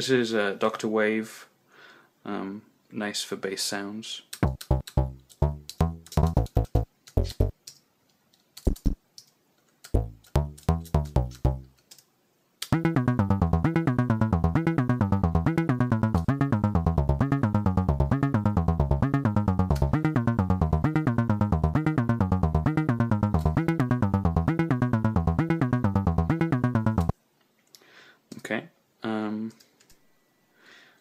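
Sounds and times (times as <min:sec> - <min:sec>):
synthesizer bass notes: 0:04.4 - 0:07.5, 0:10.0 - 0:11.7, 0:12.6 - 0:27.1.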